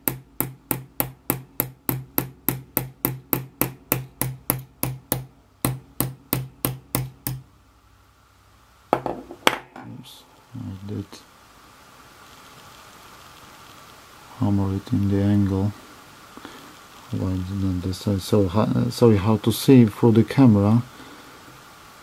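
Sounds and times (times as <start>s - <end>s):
small hammer tapping metal: 0.0s - 7.5s.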